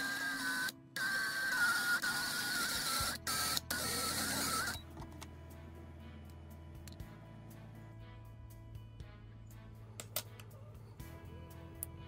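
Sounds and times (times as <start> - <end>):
drill press whining: 0.0 - 5.0.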